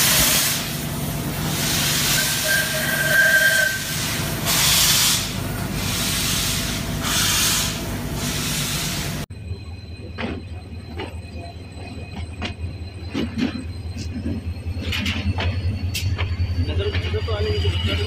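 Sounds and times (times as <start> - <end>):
steam hissing from cylinders: 0.0 - 9.2
steam locomotive rumble: 0.0 - 18.0.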